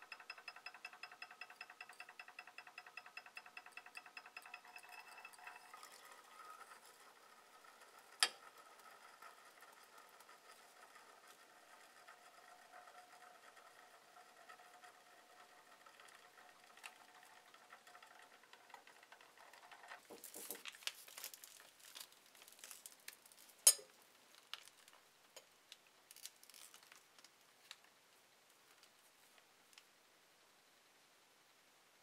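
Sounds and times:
stir plate whine: 0:00.0 - 0:20.2
plastic gel pack crinkling: 0:20.2 - 0:23.6, 0:24.3 - 0:25.0, 0:26.1 - 0:27.9.

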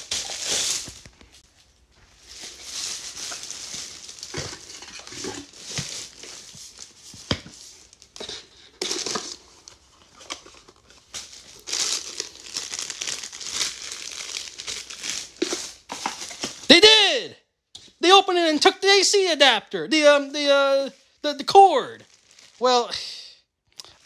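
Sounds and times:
plastic packaging crinkling: 0:00.0 - 0:16.7, 0:20.9 - 0:22.9.

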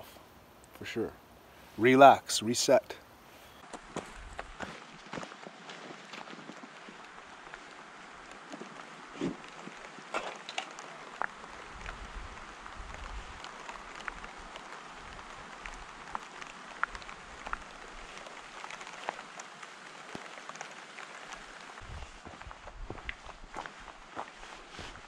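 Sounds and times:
rain hiss: 0:00.0 - 0:25.0
wind rumble on microphone: 0:04.0 - 0:04.6, 0:11.6 - 0:15.9, 0:21.8 - 0:23.6
raindrop ticks: 0:04.4 - 0:23.4.

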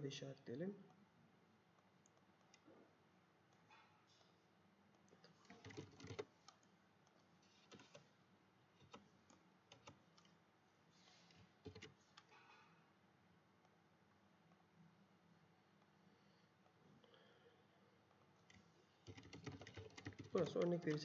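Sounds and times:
mouse and keyboard clicks: 0:05.0 - 0:08.1, 0:08.8 - 0:10.4, 0:11.6 - 0:12.3.

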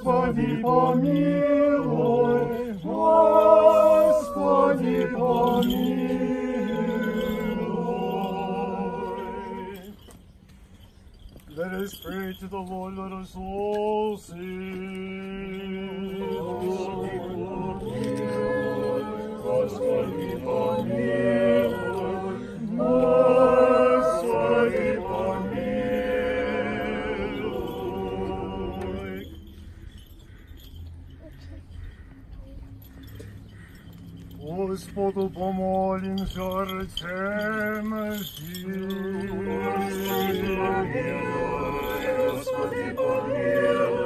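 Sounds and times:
unaccompanied choir singing in harmony: 0:00.0 - 0:10.0, 0:15.1 - 0:29.4, 0:36.6 - 0:44.0.

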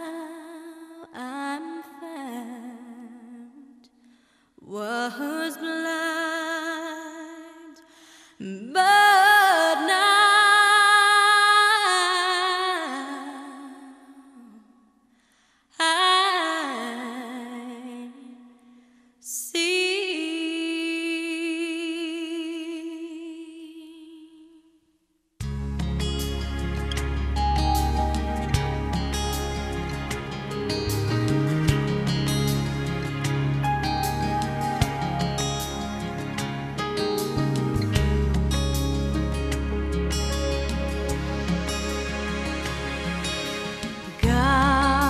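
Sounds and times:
person singing wordless melody: 0:42.5 - 0:45.0.

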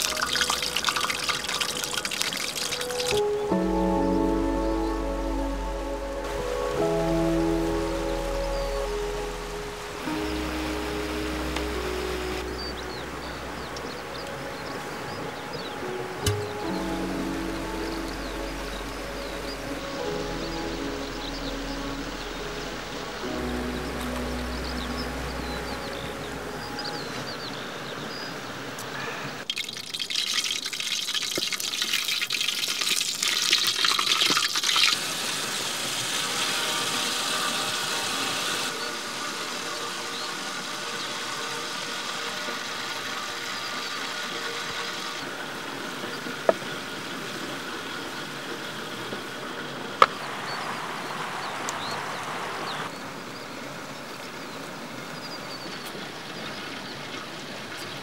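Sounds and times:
hot oil sizzling and crackling: 0:00.0 - 0:03.4, 0:29.5 - 0:48.6.

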